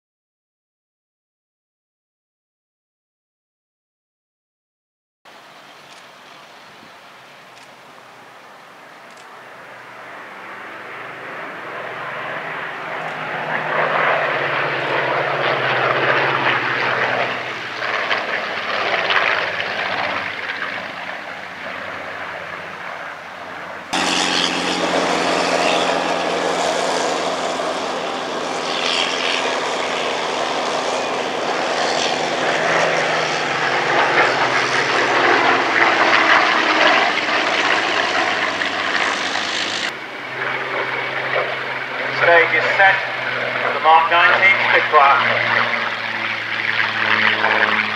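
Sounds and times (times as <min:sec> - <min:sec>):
propeller aircraft engines overhead: 0:05.4 - 0:47.9.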